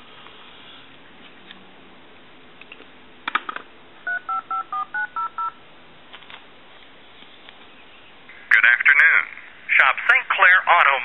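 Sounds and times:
two-tone dialing beeps: 4.1 - 5.6.

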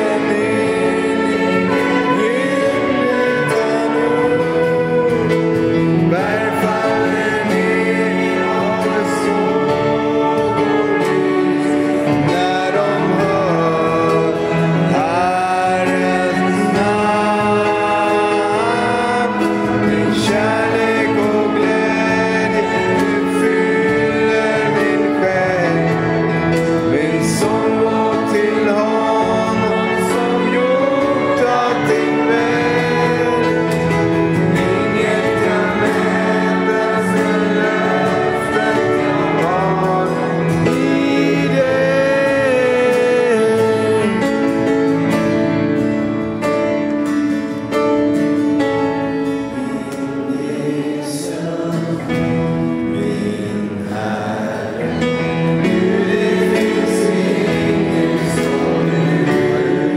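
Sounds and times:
acoustic guitar: 0.0 - 59.9
congregation singing along: 0.0 - 59.9
grand piano: 0.0 - 59.9
trumpet: 0.0 - 59.9.

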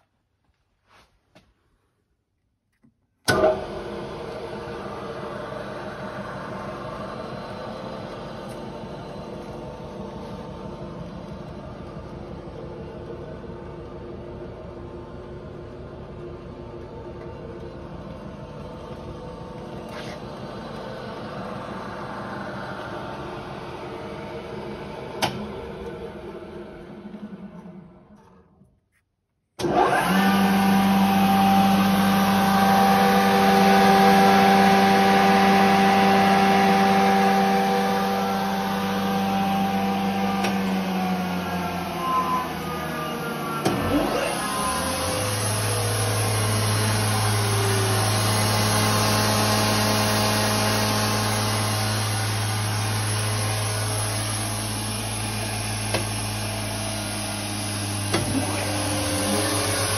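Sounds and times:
deeper motor humming: 3.3 - 28.2, 29.6 - 59.9
electric motors humming: 29.6 - 59.9
motor spinning down: 29.6 - 59.9.

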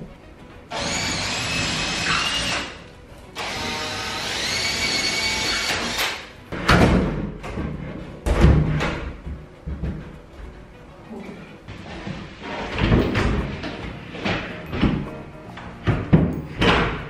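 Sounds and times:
electric drill boring into wall: 0.7 - 2.8, 3.4 - 6.3.

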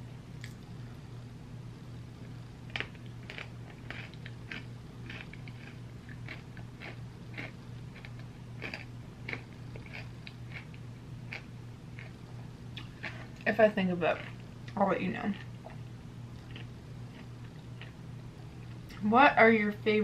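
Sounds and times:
steady low hum: 0.0 - 20.0
person chewing ice cream: 2.7 - 13.4, 15.3 - 18.0.

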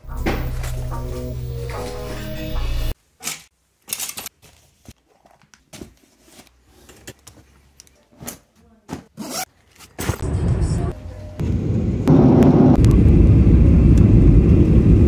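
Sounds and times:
zipper on a bag: 9.2 - 9.5.

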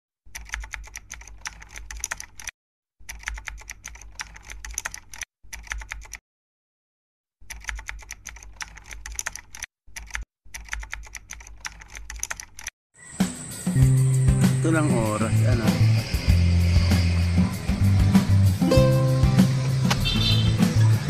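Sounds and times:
keyboard typing clicks: 0.3 - 2.5, 3.1 - 6.2, 7.4 - 12.7.

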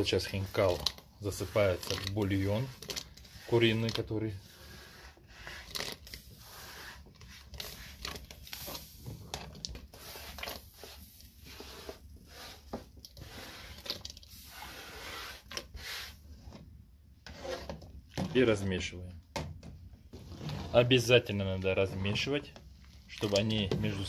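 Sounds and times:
hand scraping dough on board: 0.0 - 16.6, 17.2 - 17.9.

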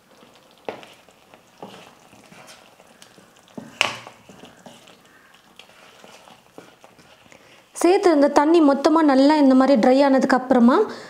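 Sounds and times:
wooden spatula scraping pan: 0.6 - 9.0
spatula knocking pan: 1.6 - 4.9.

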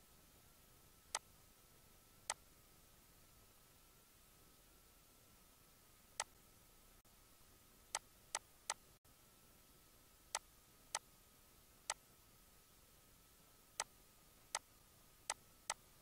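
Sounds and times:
faint steady hiss: 0.0 - 16.0.

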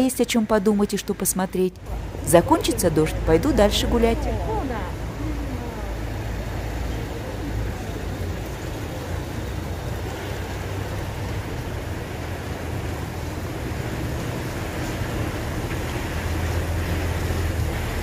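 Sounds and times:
van driving on wet cobblestones: 0.0 - 18.0.

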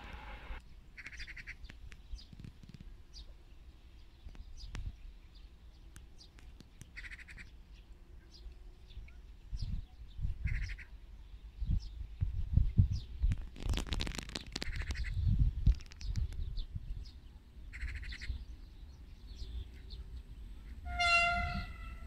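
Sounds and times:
low rumble: 0.0 - 0.6
birds chirping: 12.9 - 22.0.

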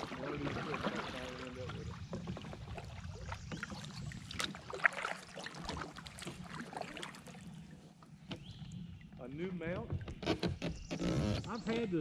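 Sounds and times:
paddles splashing in water: 0.0 - 12.0.

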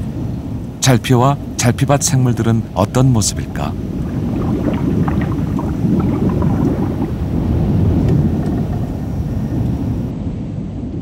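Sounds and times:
underwater low rumble: 0.0 - 0.8, 3.3 - 11.0.

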